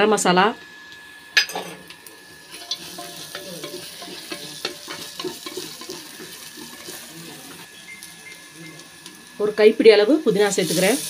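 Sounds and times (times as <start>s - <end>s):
onions sizzling in oil: 0.0s - 11.0s
wooden spatula scraping metal pot: 2.5s - 7.7s.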